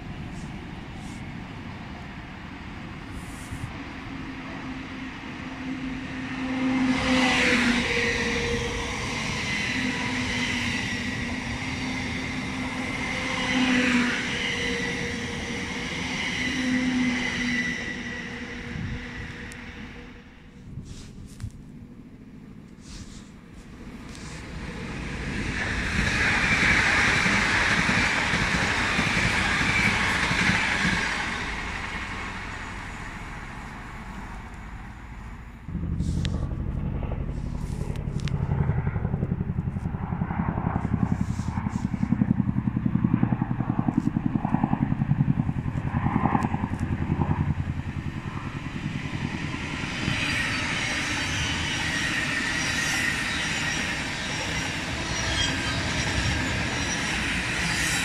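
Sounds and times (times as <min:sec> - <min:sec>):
helicopter rumble overhead: 0:00.0 - 0:17.2, 0:17.8 - 0:58.0
electric train passing: 0:00.0 - 0:20.8, 0:23.4 - 0:58.0
train wheels hissing on rails: 0:00.0 - 0:21.5, 0:22.7 - 0:36.4, 0:48.6 - 0:58.0
loud rushing noise: 0:35.5 - 0:39.0.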